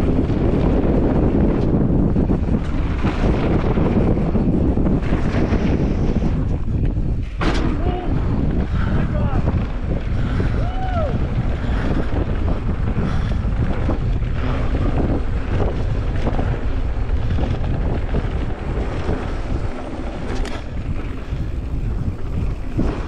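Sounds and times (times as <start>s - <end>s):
bike tyres rattling on dirt trail: 0.0s - 23.0s
wind buffeting microphone: 0.0s - 23.0s.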